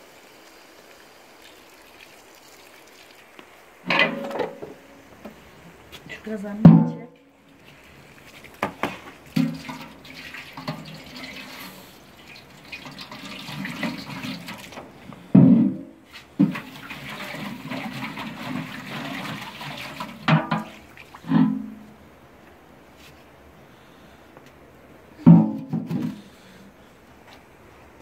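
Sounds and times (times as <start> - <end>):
water running and splashing: 0.0 - 15.4, 16.0 - 21.9
containers knocking: 3.9 - 5.4, 20.2 - 21.8.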